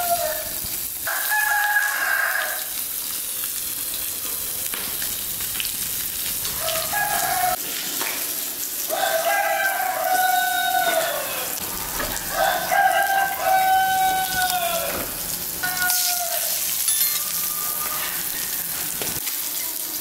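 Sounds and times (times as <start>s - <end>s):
roosters crowing: 0.0s - 2.8s, 6.4s - 7.6s, 8.8s - 19.2s
fish sizzling on a grill pan: 0.0s - 20.0s.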